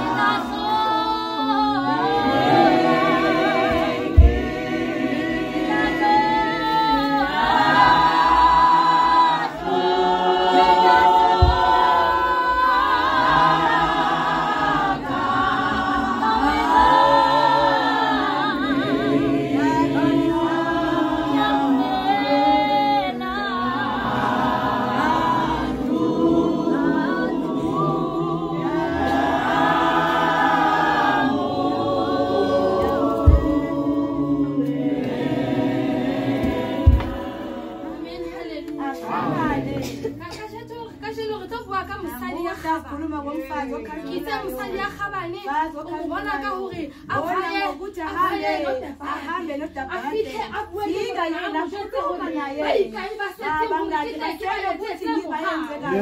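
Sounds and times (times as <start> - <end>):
women singing a hymn: 0.0 - 56.0
heavy low thump: 4.0 - 5.0, 11.1 - 12.2, 33.1 - 33.7, 36.4 - 37.4.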